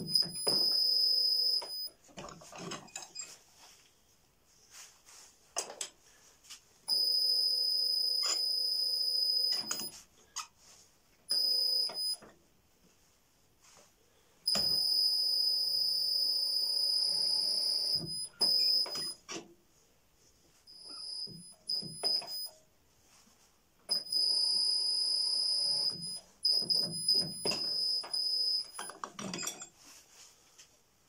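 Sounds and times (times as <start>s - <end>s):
machine chirps and clunks: 0.0s - 1.9s, 8.0s - 10.0s, 11.3s - 12.2s, 14.5s - 19.4s, 20.7s - 22.5s, 23.9s - 29.7s.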